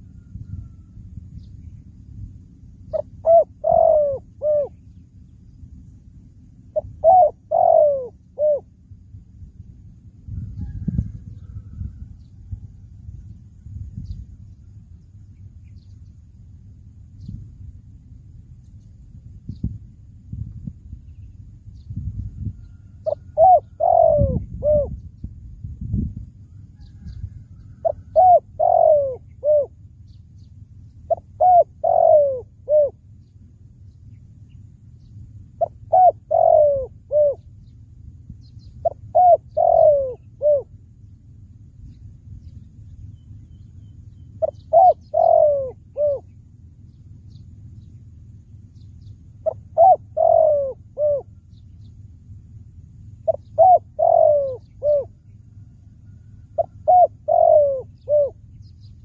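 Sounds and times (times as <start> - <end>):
dove cooing: 2.8 - 5.0, 6.6 - 8.8, 22.5 - 25.2, 26.5 - 30.2, 31.0 - 33.1, 35.6 - 37.6, 38.5 - 40.9, 44.2 - 46.6, 49.4 - 51.7, 53.2 - 58.7.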